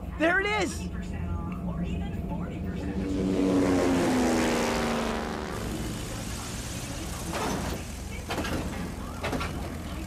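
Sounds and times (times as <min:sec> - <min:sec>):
propeller plane engine droning: 0:00.0 - 0:10.0.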